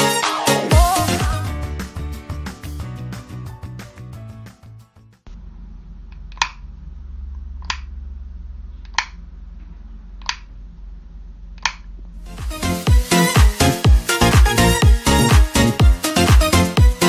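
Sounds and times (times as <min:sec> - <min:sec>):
low steady hum: 0:05.3 - 0:12.6
sharp clicks: 0:06.1 - 0:06.6, 0:10.2 - 0:10.5, 0:11.6 - 0:11.9.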